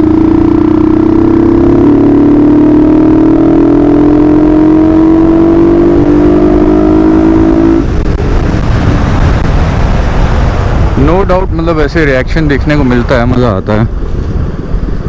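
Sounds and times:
motorcycle engine accelerating: 0:00.0 - 0:11.0
wind and road noise: 0:00.0 - 0:15.0.

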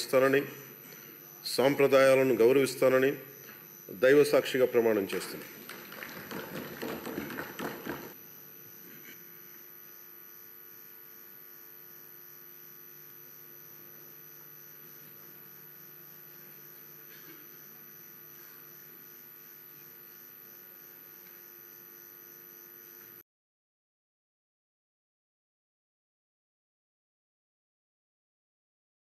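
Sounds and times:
steady electrical hum: 0:00.0 - 0:23.2.

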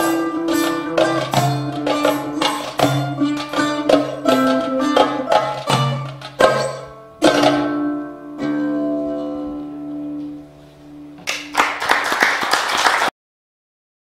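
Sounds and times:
fretless oud plucked chords: 0:00.0 - 0:11.3
audience applause: 0:11.3 - 0:13.1.

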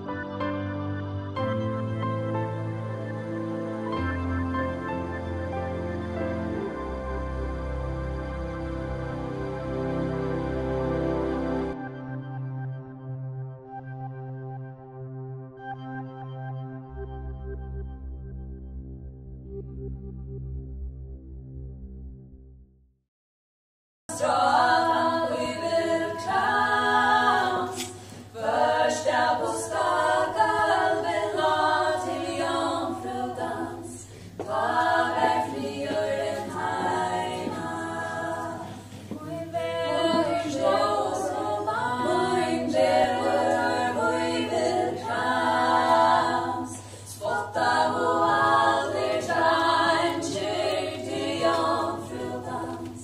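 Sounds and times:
women singing a cappella: 0:24.1 - 0:53.0.

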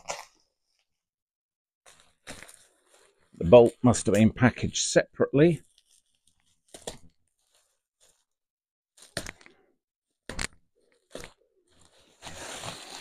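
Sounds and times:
bubble wrap crackling: 0:01.9 - 0:03.4, 0:05.6 - 0:08.4, 0:10.8 - 0:13.0.

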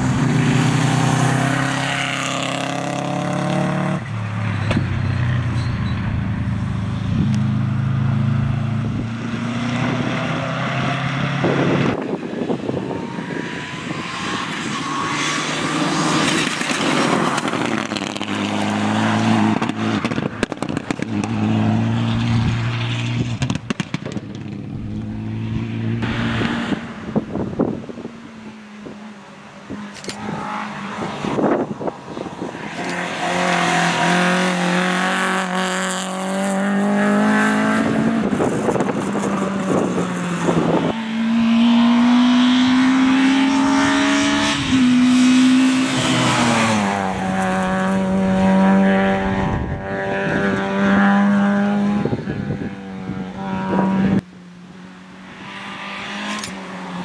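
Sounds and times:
rally car engines revving: 0:00.0 - 0:57.0
exhaust pops and cracks: 0:19.6 - 0:21.1, 0:23.4 - 0:24.6.

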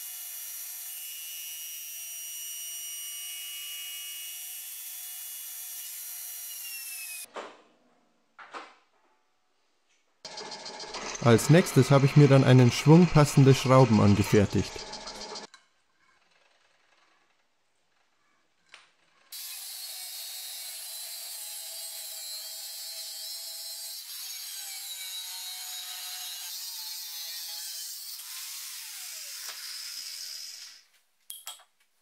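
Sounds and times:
angle grinder cutting steel: 0:10.3 - 0:15.5, 0:19.3 - 0:30.8.

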